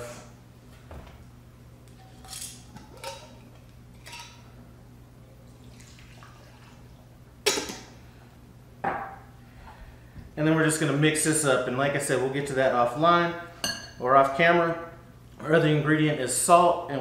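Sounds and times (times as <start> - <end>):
liquid pouring: 5.5 - 7.1.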